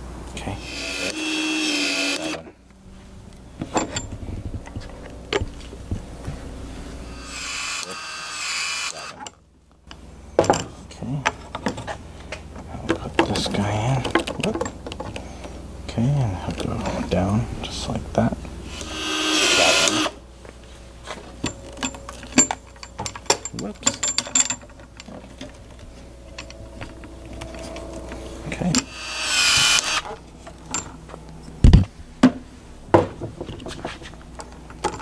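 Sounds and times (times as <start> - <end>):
power tool motor whining: 0.6 - 2.6, 7.0 - 9.2, 18.7 - 20.2, 26.4 - 30.4.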